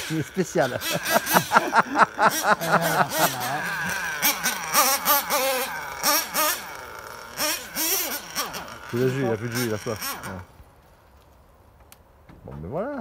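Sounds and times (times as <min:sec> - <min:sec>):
people laughing: 0:00.0 - 0:05.2
people moaning: 0:00.1 - 0:06.2.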